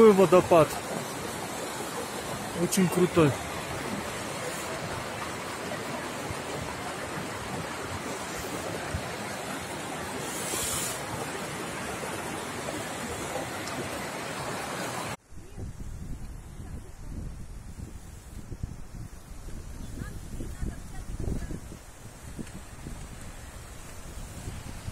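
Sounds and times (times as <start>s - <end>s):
waterfall rushing: 0.0s - 15.2s
wind buffeting microphone: 15.2s - 24.9s.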